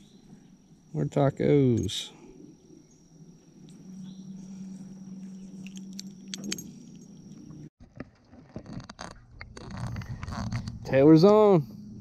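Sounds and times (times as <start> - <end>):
high insect buzz: 0.0 - 7.7.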